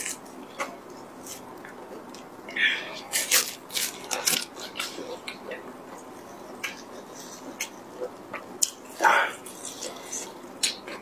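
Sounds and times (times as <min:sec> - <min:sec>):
plastic gloves crinkling: 0:03.1 - 0:05.0.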